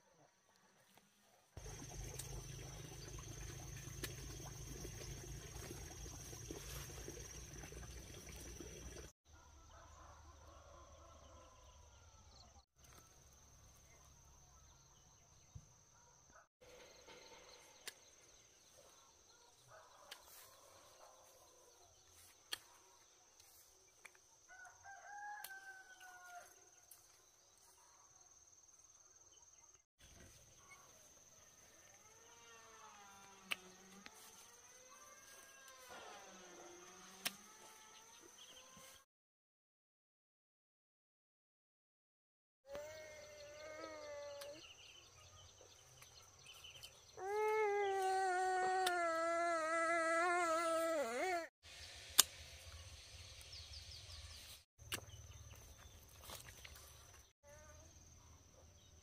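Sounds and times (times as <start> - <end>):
rooster crowing: 9.3 - 11.7, 24.5 - 26.6.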